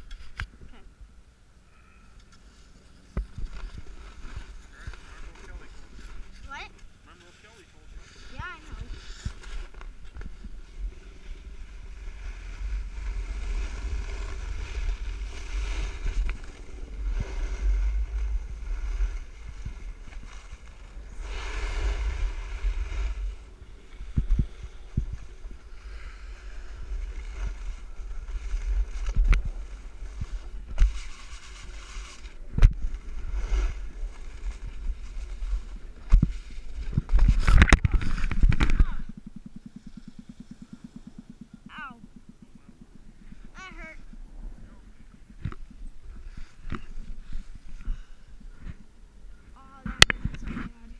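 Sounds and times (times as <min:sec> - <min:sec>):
skis scraping on snow: 0:02.4 - 0:38.5, 0:46.0 - 0:49.8
wind buffeting microphone: 0:07.8 - 0:50.9.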